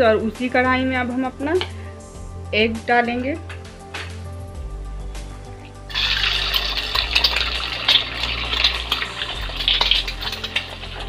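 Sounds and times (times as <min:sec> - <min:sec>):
egg sizzling in hot oil: 0:05.7 - 0:11.0.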